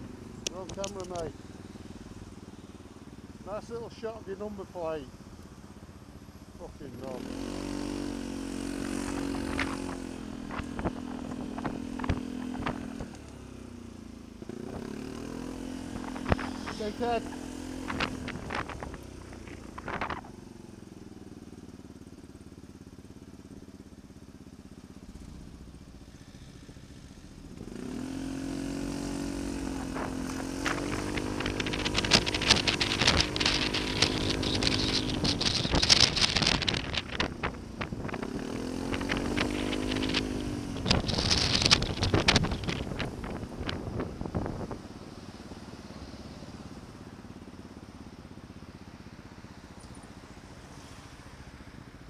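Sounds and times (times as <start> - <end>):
motorcycle engine: 0.0 - 52.0
wind noise on microphone: 8.9 - 13.1, 15.8 - 20.3, 29.5 - 45.0.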